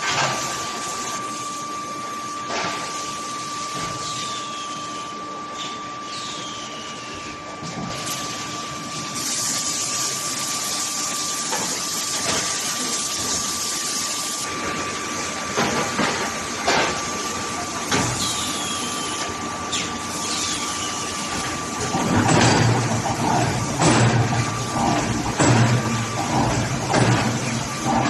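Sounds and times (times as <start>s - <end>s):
heavy machinery noise: 14.4s - 28.0s.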